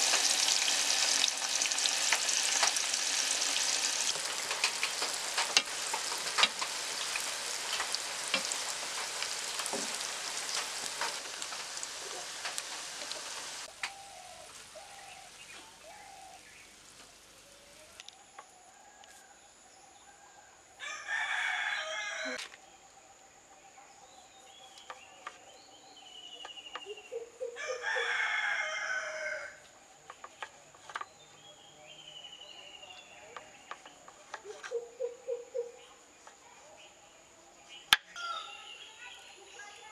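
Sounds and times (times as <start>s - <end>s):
rooster crowing: 20.8s - 22.4s, 27.6s - 29.6s
bird chirps: 24.0s - 27.6s.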